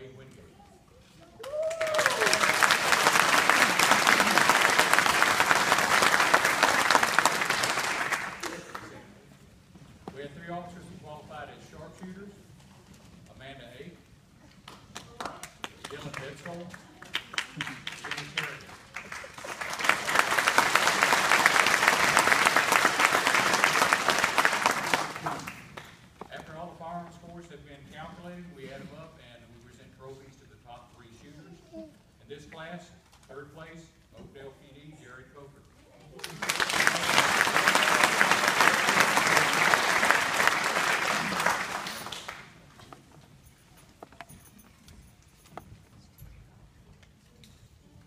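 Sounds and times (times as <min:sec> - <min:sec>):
audience applauding: 0:01.4 - 0:09.0, 0:15.0 - 0:26.0, 0:36.2 - 0:42.7.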